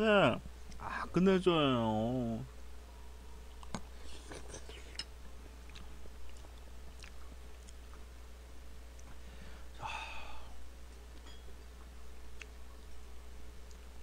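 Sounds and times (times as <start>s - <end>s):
person chewing food: 3.5s - 8.1s.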